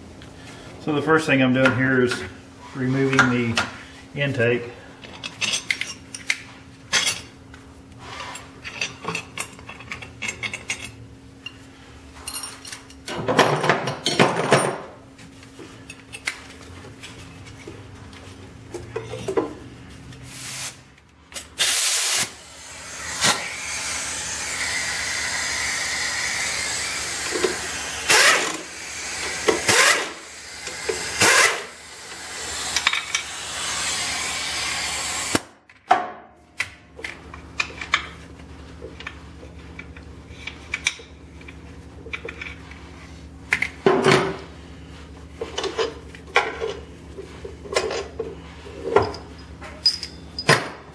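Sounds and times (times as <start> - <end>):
air blow gun hissing: 21.6 - 35.4.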